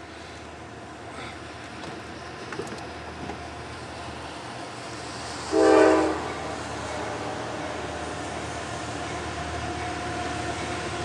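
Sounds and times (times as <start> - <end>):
train rumble: 0.0 - 11.0
locomotive air horn chord: 5.5 - 7.8.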